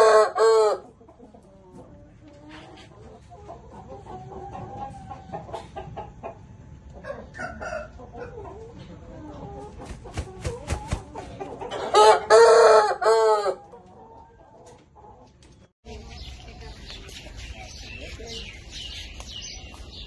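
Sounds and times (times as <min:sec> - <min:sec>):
rooster crowing: 0:00.0 - 0:00.8, 0:11.9 - 0:13.6
rooster clucking: 0:00.0 - 0:15.4
wings beating: 0:09.8 - 0:11.1.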